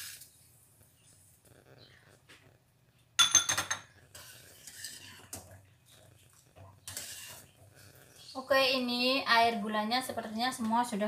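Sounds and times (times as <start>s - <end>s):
ladle stirring syrup: 3.8s - 8.8s.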